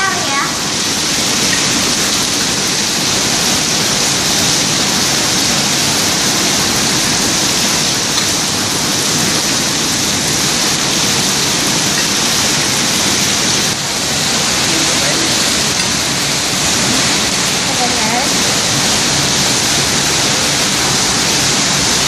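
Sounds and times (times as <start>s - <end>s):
heavy rain falling: 0.0s - 22.0s.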